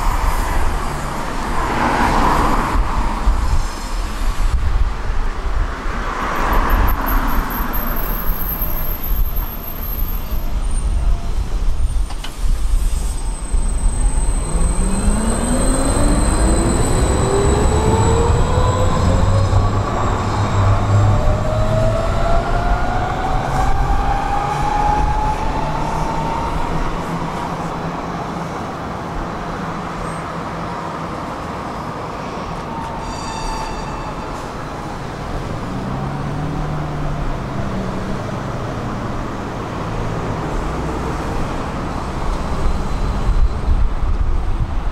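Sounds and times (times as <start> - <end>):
tram wheels rumbling on rails: 0.0 - 44.9.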